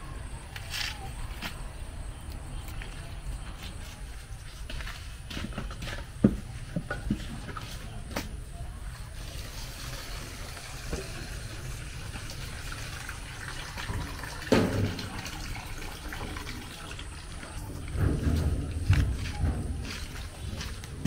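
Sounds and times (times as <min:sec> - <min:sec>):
water running into plastic bowl: 0:09.2 - 0:18.9.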